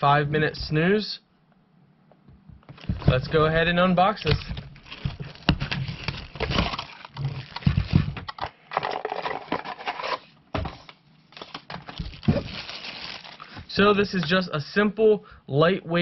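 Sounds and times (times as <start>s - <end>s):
plastic bag rustling: 2.7s - 14.3s
cardboard tearing: 4.2s - 8.1s, 11.4s - 13.4s.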